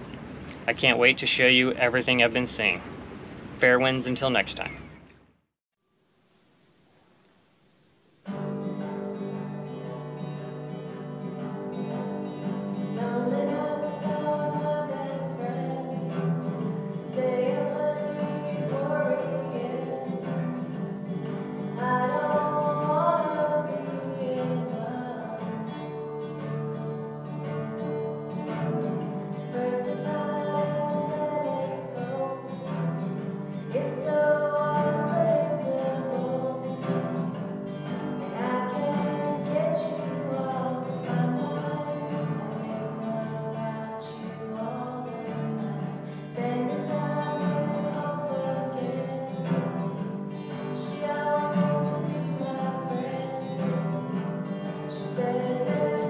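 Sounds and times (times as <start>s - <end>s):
acoustic guitar: 0.0s - 5.0s, 6.9s - 56.0s
woman singing: 9.4s - 26.1s, 28.5s - 56.0s.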